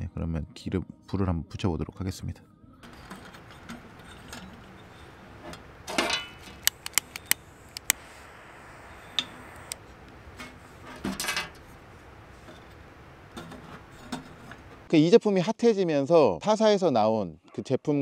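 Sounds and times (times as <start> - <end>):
metal clatter: 2.8 - 7.2
sharp clicks: 6.4 - 8.3.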